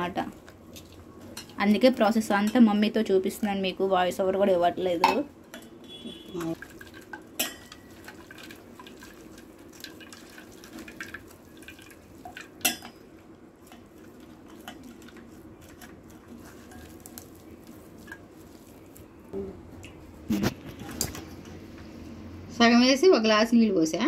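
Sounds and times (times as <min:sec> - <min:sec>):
liquid dripping: 0:05.9 - 0:20.1
wet coconut squelching: 0:13.6 - 0:21.2.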